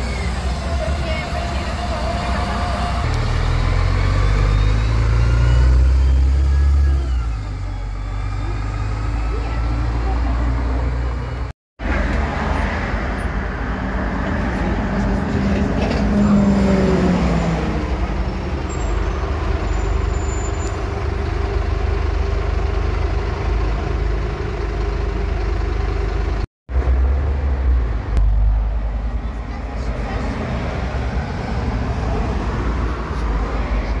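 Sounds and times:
bus diesel engine idling: 0.0s - 3.8s, 18.0s - 26.5s.

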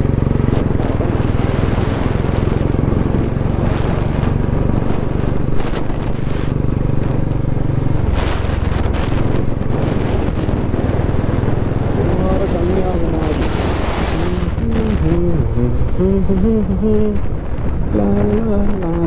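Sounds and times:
motorcycle engine running: 0.0s - 19.0s
wind rushing over microphone: 0.0s - 19.0s.

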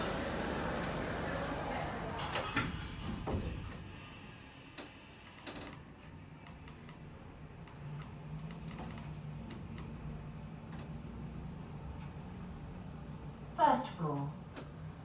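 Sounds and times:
lift drive humming: 0.0s - 2.6s.

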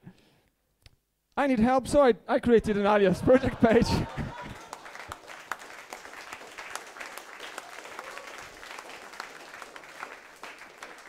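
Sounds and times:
audience applause: 3.1s - 11.0s.

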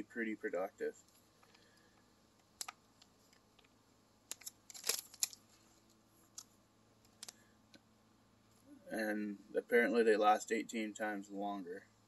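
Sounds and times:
plastic package crinkling: 4.3s - 5.5s.

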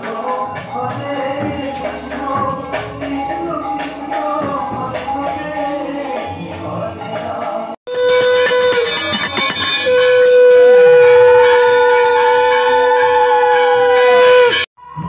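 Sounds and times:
conch shell blast: 7.9s - 14.7s.

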